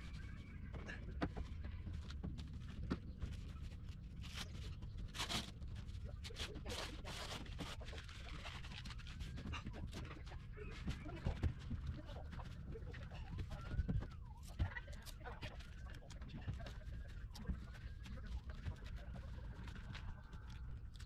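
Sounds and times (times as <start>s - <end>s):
sailcloth rustling and crinkling: 1.9s - 21.0s.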